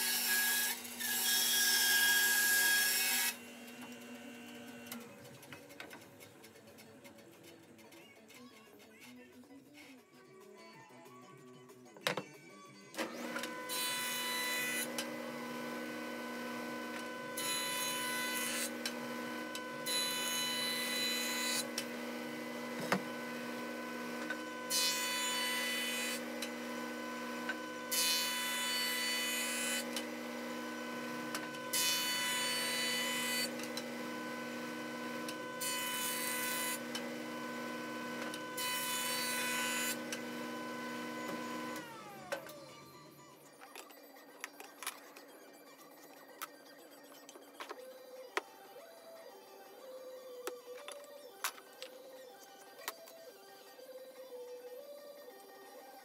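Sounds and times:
jointer cutting wood: 0:00.0 - 0:06.0, 0:13.0 - 0:42.9
jointer motor hum: 0:13.0 - 0:42.8.

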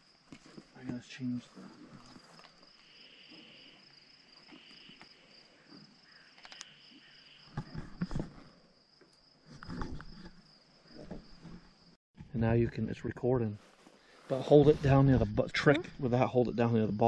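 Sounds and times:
pulsing insect call: 0:00.8 - 0:12.0.

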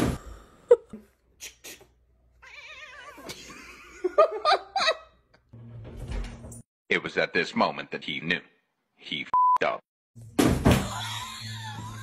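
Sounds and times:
cat yowling: 0:02.4 - 0:03.3.

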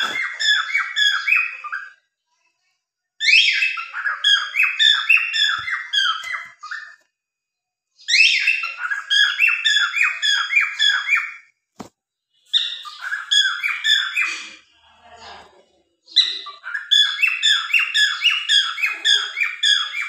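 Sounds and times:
cockatiels chirping: 0:00.0 - 0:02.0, 0:03.2 - 0:07.1, 0:08.0 - 0:11.4, 0:12.5 - 0:14.6, 0:16.1 - 0:20.0.

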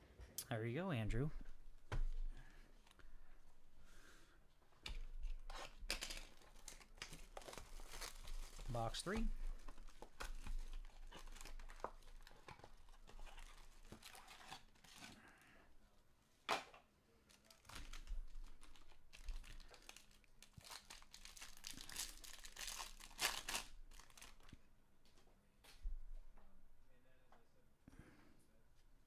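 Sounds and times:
foil wrappers crinkling and tearing: 0:05.2 - 0:15.5, 0:17.2 - 0:24.5.

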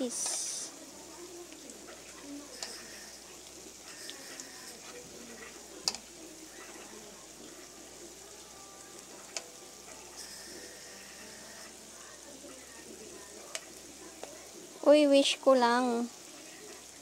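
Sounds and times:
food sizzling in oil: 0:00.0 - 0:17.0
metal tongs clicking on pan: 0:05.4 - 0:06.9, 0:09.3 - 0:10.0, 0:13.5 - 0:14.4.

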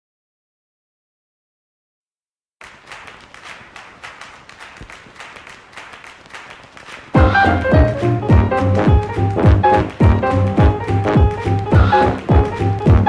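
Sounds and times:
crowd clapping: 0:02.6 - 0:13.0.

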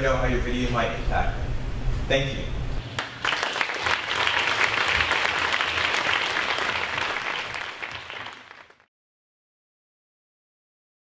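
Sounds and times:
audience applauding: 0:02.9 - 0:08.9.

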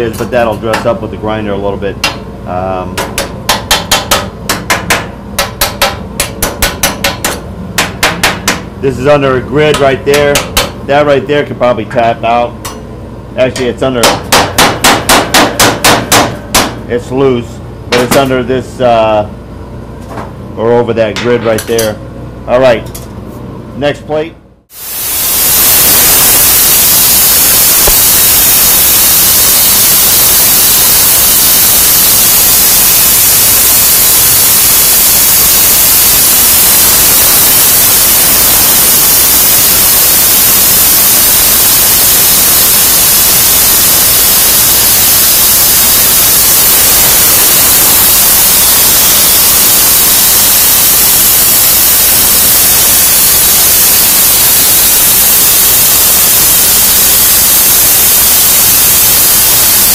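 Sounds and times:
plasma torch cutting metal: 0:24.7 - 0:59.9.

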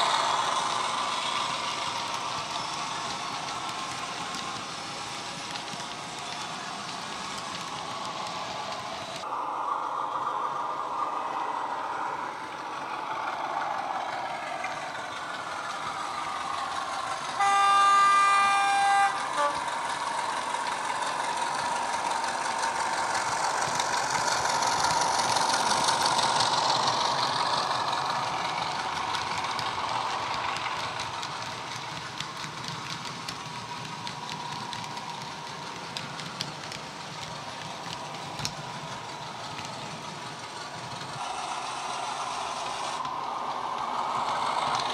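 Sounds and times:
model diesel engine sound: 0:00.0 - 0:44.9
locomotive horn blast: 0:17.4 - 0:19.8.

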